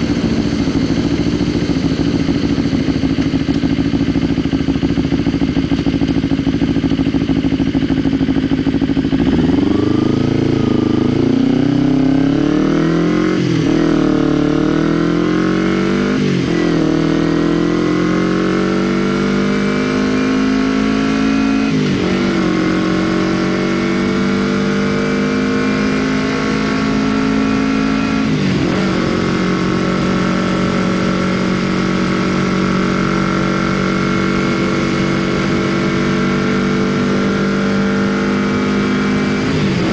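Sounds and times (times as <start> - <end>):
motorcycle engine idling: 0.0 - 12.0
motorcycle accelerating through gears: 0.0 - 39.9.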